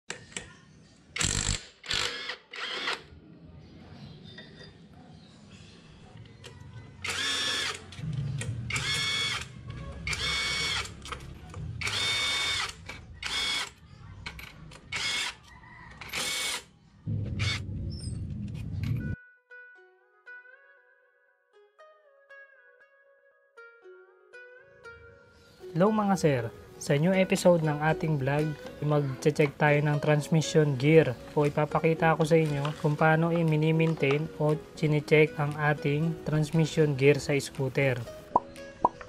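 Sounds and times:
cordless drill whirring: 1.2s - 3.0s, 7.0s - 7.8s, 8.7s - 9.4s, 11.8s - 13.7s, 14.9s - 15.4s, 16.1s - 16.6s.

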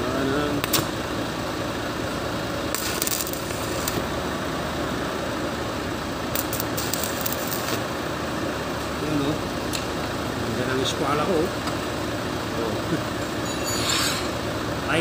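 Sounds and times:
steady low hum: 0.0s - 15.0s
welding arc crackling: 0.6s - 1.1s, 2.5s - 4.2s, 6.2s - 8.1s.

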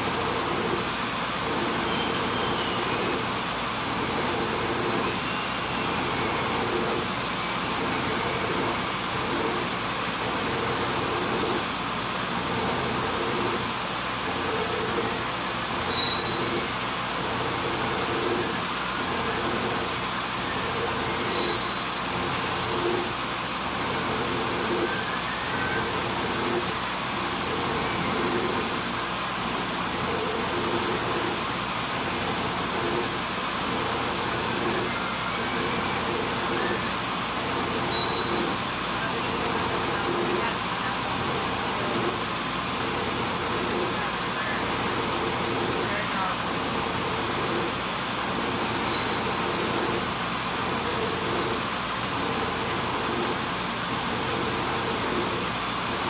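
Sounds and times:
end mill cutting steel: 0.0s - 56.0s
milling machine whirring: 0.0s - 56.0s.

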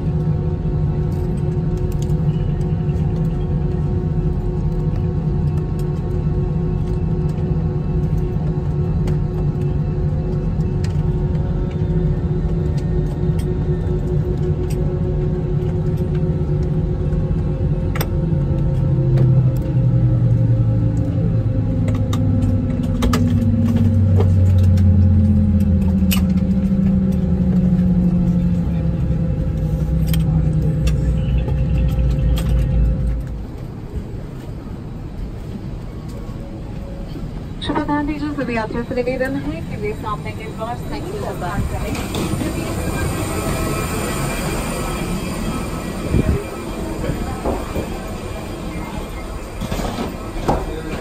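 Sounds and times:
aircraft engines idling rumble: 0.0s - 51.0s
soft background music: 35.0s - 40.6s.

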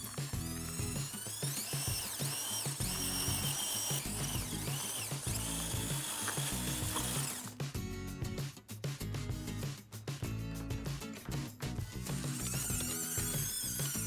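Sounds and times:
toy tractor motor whining: 0.0s - 7.5s, 12.1s - 14.0s
background music: 0.0s - 14.0s.

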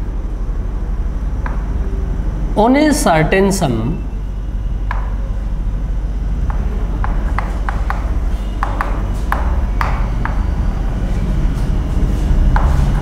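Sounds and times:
low room hum: 0.0s - 13.0s
chalk tapping on board: 6.5s - 10.4s.

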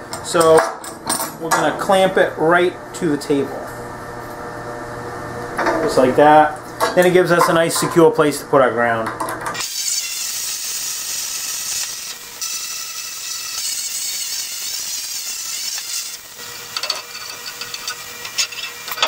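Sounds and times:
plasma cutter arc hissing: 9.6s - 19.0s.

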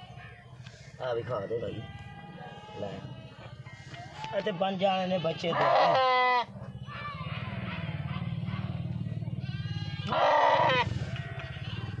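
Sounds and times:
young animal bleating: 5.0s - 6.5s, 9.4s - 10.9s.

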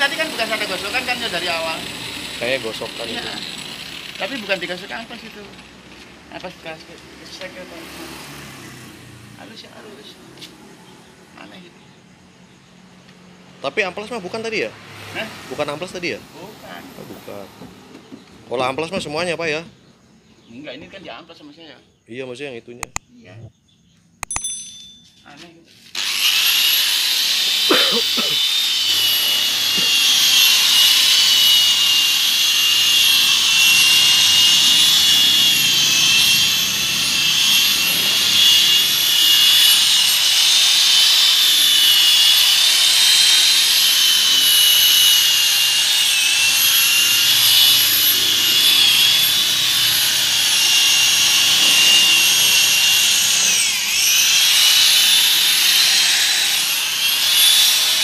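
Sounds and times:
car polisher motor whine: 26.0s - 58.0s.

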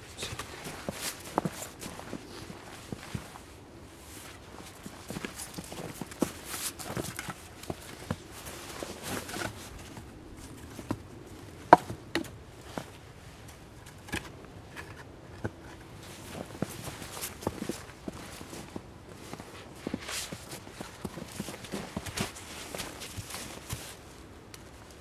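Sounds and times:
footsteps in snow: 0.2s - 10.9s, 16.0s - 24.2s
stick knocking wooden stakes: 11.7s - 12.3s.

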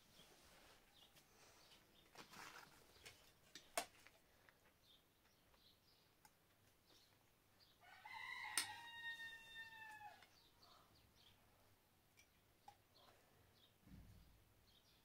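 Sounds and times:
small birds chirping: 0.0s - 15.0s
rooster crowing: 7.8s - 10.3s.

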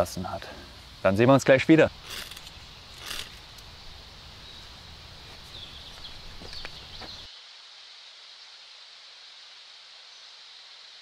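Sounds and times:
faint steady hiss: 0.0s - 11.0s
faint bird chirps: 4.4s - 7.3s.

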